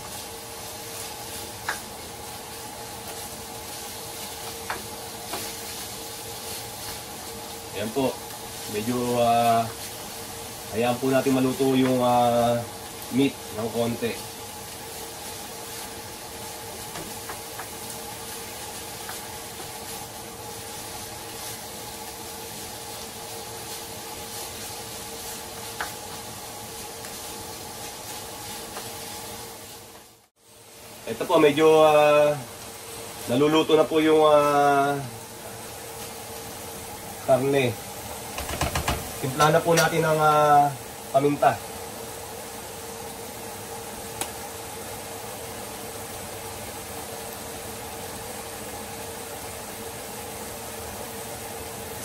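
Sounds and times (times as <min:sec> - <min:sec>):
meat sizzling in a pan: 0:00.0 - 0:52.0
spatula tapping pan: 0:38.4 - 0:39.2.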